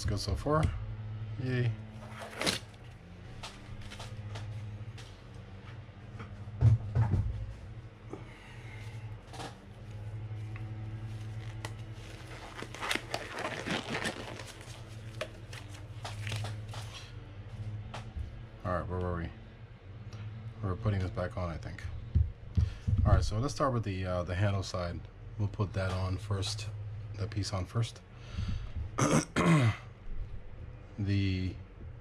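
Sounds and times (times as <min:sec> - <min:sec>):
steady low hum: 0:00.0 - 0:32.0.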